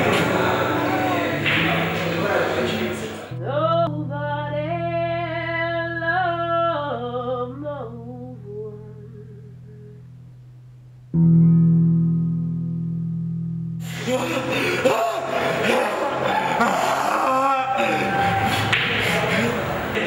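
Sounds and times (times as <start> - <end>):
guitar chords ringing: 0.0 - 2.6, 7.8 - 14.6
woman singing: 3.3 - 10.1.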